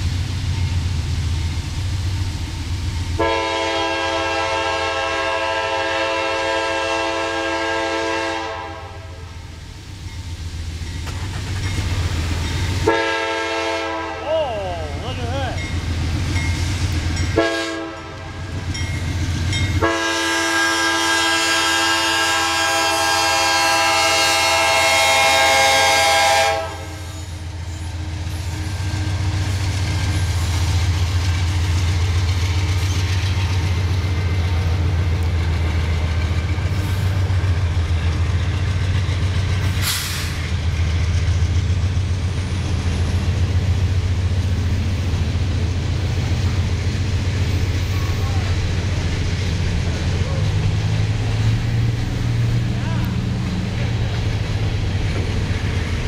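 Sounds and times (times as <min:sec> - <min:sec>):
diesel engines rumbling past: 0:00.0 - 0:56.0
train cars rolling on rails: 0:00.0 - 0:56.0
locomotive horn blasts: 0:03.2 - 0:09.3, 0:12.8 - 0:14.4, 0:17.4 - 0:18.5, 0:19.8 - 0:27.2.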